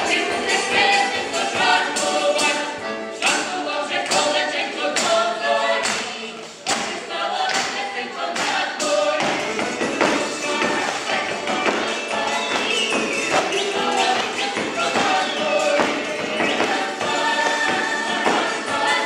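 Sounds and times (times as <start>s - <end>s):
accordion: 0.0s - 6.0s, 6.7s - 19.0s
choir singing folk song: 0.0s - 19.0s.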